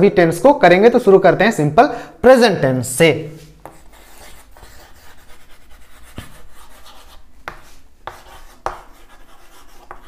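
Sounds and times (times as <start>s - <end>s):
chalk scratching on chalkboard: 3.6s - 10.0s.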